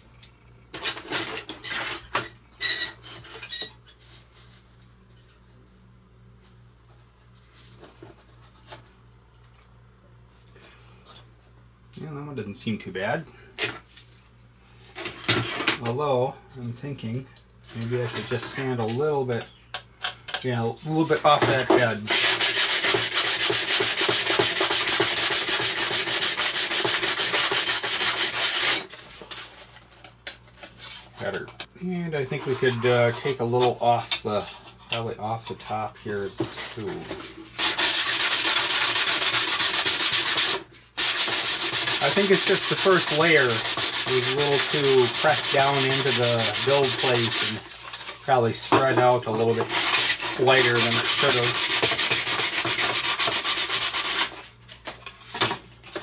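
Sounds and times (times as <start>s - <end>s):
sandpaper sanding plastic: 22.0s - 28.9s, 37.6s - 48.1s, 48.8s - 54.5s.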